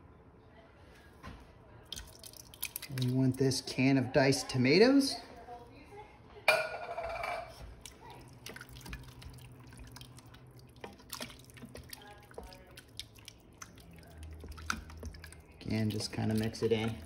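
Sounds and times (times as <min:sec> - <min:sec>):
low steady hum: 0:00.0 - 0:17.0
sauce sloshing and squelching: 0:01.9 - 0:04.0, 0:07.5 - 0:17.0.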